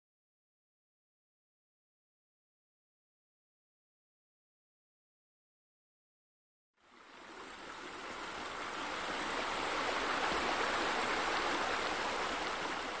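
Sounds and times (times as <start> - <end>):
running water rushing: 6.8 - 13.0.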